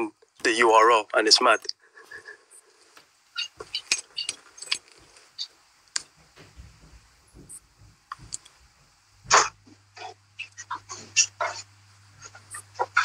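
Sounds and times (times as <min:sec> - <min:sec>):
sharp clicks and rattles: 0:08.1 - 0:08.6.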